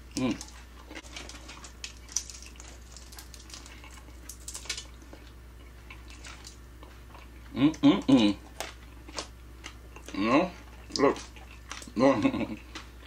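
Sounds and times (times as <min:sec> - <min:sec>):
chewing food: 0:00.0 - 0:13.0
small wet clicks and crackles: 0:00.2 - 0:06.6.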